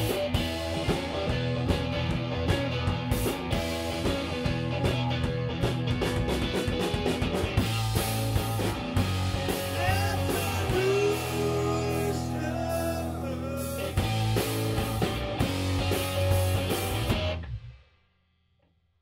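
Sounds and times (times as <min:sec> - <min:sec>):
punk rock band playing: 0:00.0 - 0:17.8
held guitar chord with sliding notes: 0:07.6 - 0:17.4.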